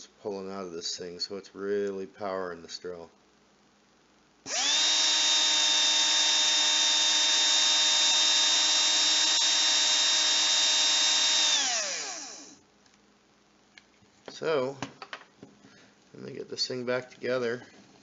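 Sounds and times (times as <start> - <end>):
cordless drill motor whining: 4.5 - 12.6.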